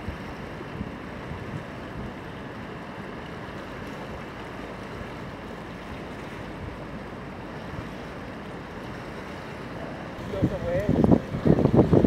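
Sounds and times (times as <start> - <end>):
wind buffeting microphone: 0.0 - 2.8, 10.2 - 12.0
ocean surf: 0.0 - 12.0.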